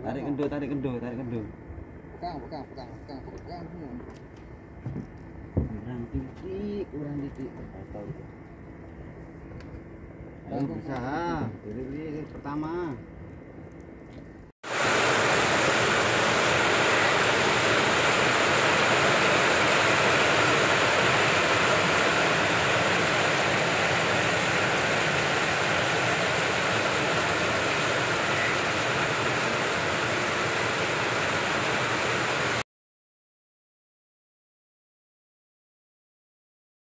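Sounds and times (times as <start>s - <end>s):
steady rushing noise: 14.6s - 32.6s.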